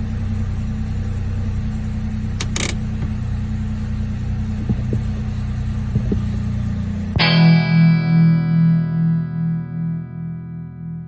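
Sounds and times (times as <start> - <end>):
car engine idling: 0.0 - 7.4.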